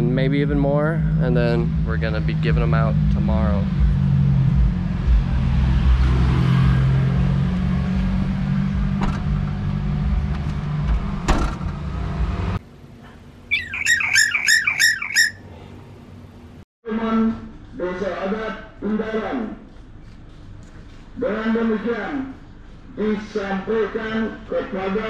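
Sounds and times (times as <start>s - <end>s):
car engine rumble: 0.0s - 16.6s
bird harsh calls: 13.5s - 15.6s.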